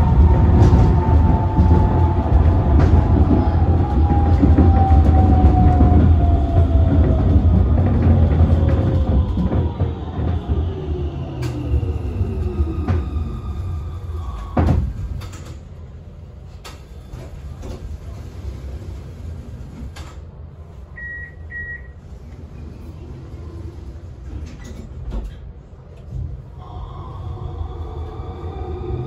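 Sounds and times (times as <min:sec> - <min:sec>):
tram rumbling with knocks: 0:00.0 - 0:29.0
short beeps: 0:21.0 - 0:22.0.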